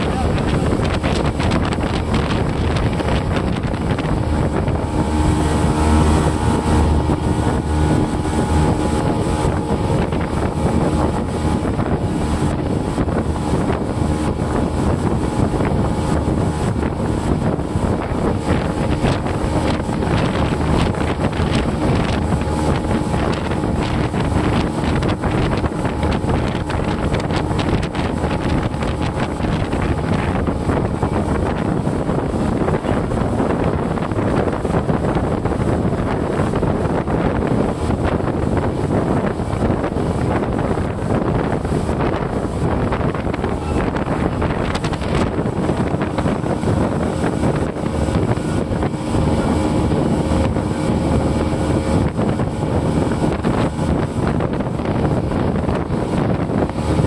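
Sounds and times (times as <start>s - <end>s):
boat engine running: 0.0s - 57.0s
rush of wind and water: 0.0s - 57.0s.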